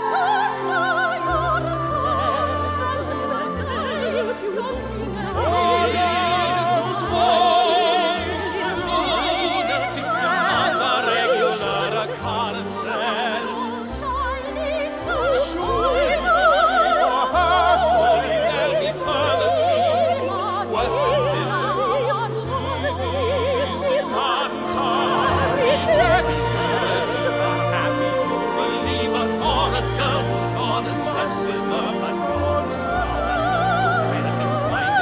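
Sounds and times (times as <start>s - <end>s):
operatic singing with vibrato: 0.0s - 35.0s
orchestral accompaniment: 0.0s - 35.0s.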